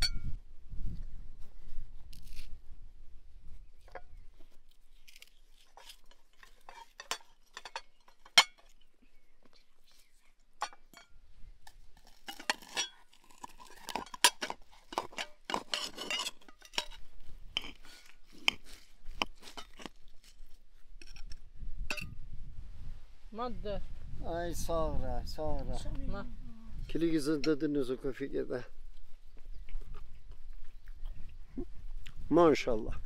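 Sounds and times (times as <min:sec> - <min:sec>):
knife scraping on china plate: 0:05.1 - 0:08.8, 0:12.1 - 0:17.0.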